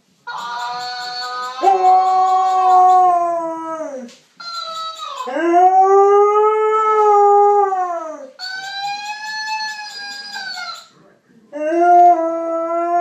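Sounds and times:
toy playing back howl: 0.3s - 6.9s, 8.4s - 10.9s
dog howling: 0.3s - 10.9s, 11.6s - 13.0s.

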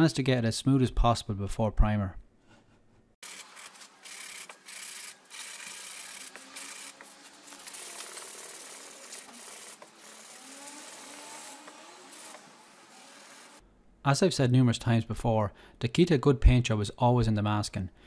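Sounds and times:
sandpaper scratching: 3.2s - 13.6s.

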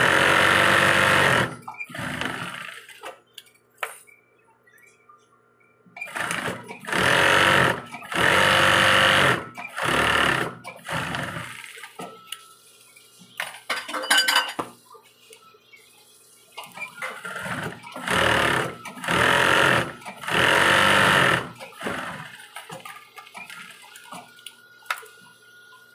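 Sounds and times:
sewing machine stitching: 0.0s - 3.0s, 6.0s - 11.8s, 16.9s - 22.5s.

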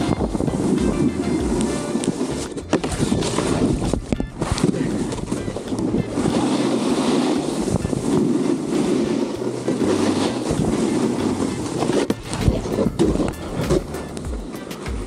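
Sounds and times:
wind buffeting microphone: 0.0s - 14.6s
snowboard scraping over snow: 0.0s - 15.0s.

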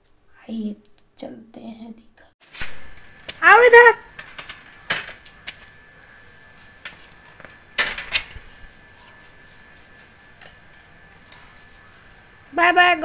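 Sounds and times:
bicycle rattling and clattering: 2.4s - 5.6s, 7.8s - 8.3s.

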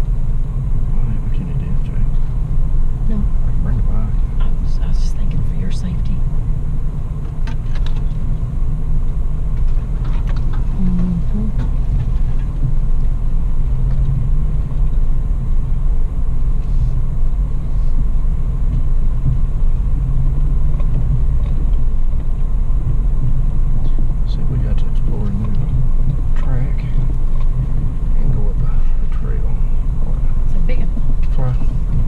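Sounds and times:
car engine and road rumble: 0.0s - 32.0s
light rattles and knocks: 7.2s - 10.8s.

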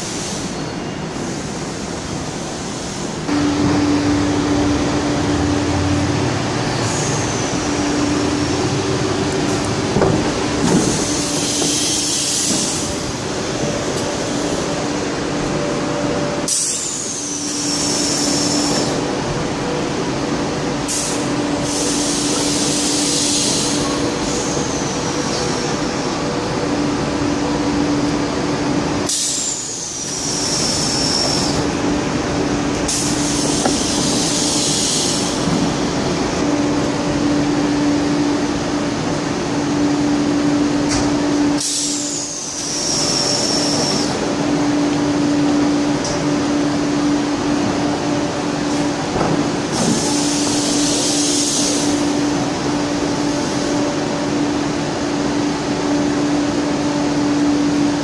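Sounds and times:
train hum: 0.0s - 58.0s
compressed air hissing: 6.7s - 14.8s, 16.4s - 19.0s, 20.9s - 25.9s, 29.0s - 31.9s, 32.7s - 36.5s, 41.6s - 44.3s, 49.6s - 52.4s.

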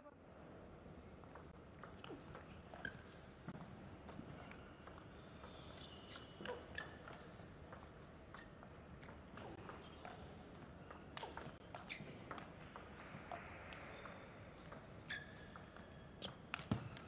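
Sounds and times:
shoes squeaking on floor: 5.4s - 7.2s, 11.8s - 12.2s.

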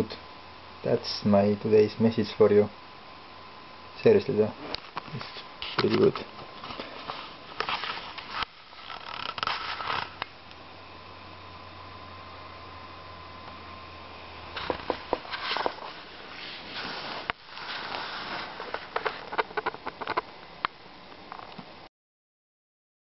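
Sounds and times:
faint thin whine: 0.0s - 21.9s
low hum: 6.5s - 21.9s
sharp clicks and knocks: 14.6s - 15.8s.

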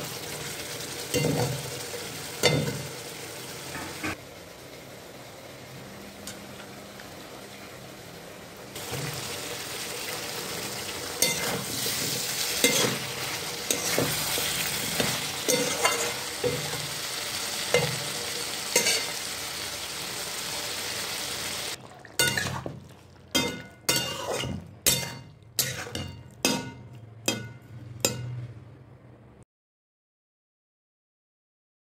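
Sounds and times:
food sizzling in a pan: 0.0s - 28.2s
spatula scraping a pan: 11.2s - 16.9s, 23.4s - 26.7s
stirring strokes: 22.1s - 26.7s.

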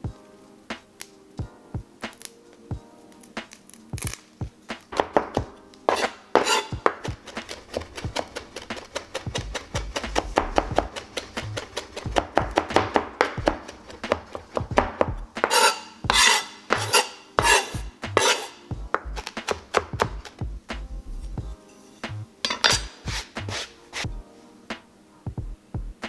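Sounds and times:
knife chopping on cutting board: 5.0s - 20.4s, 22.5s - 24.1s
knife scraping across board: 5.9s - 14.6s, 15.4s - 19.8s, 21.7s - 24.1s.

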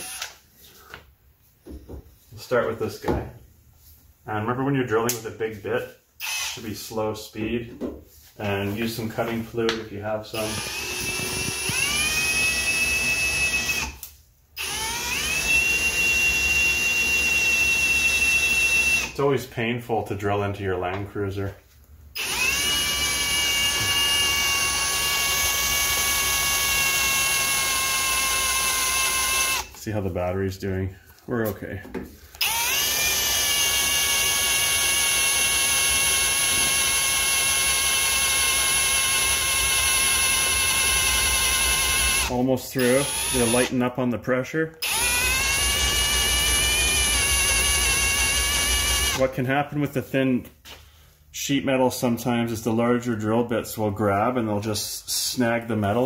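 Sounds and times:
cordless drill motor whine: 0.0s - 0.4s, 6.2s - 6.6s, 10.4s - 14.0s, 14.6s - 19.2s, 22.2s - 29.8s, 32.4s - 43.7s, 44.8s - 49.2s.

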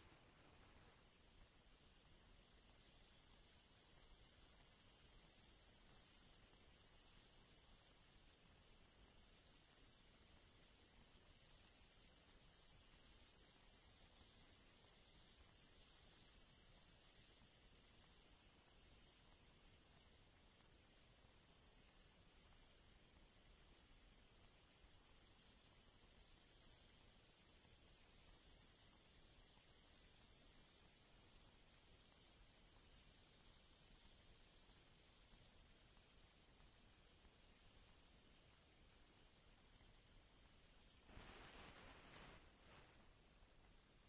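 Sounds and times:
spray gun compressed air hiss: 37.6s - 43.2s.

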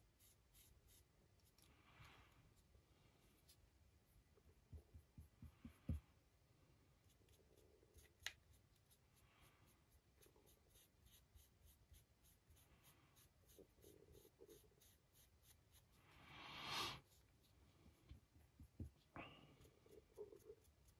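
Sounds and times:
paintbrush rubbing: 0.0s - 6.0s, 7.0s - 20.9s
hiss: 16.2s - 17.0s.

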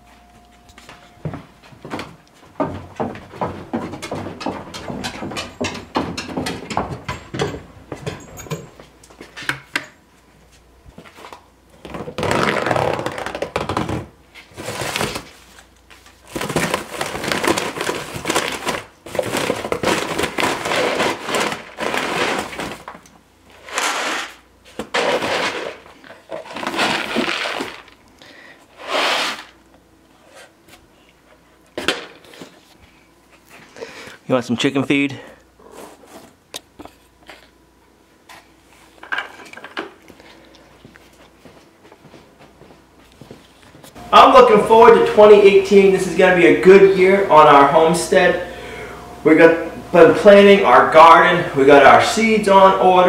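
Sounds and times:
footsteps on wooden stairs: 0.8s - 9.4s, 40.8s - 44.0s
feed sack rustling: 25.0s - 28.0s.

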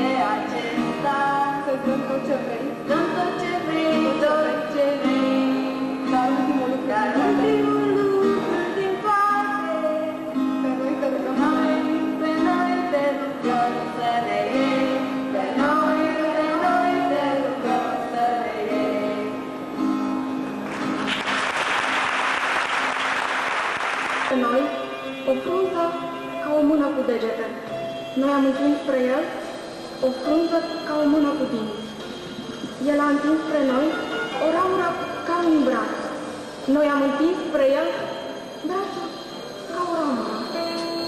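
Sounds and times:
woman singing: 0.0s - 19.5s, 24.3s - 27.6s
acoustic guitar: 0.0s - 41.0s
audience applauding: 20.6s - 24.3s.

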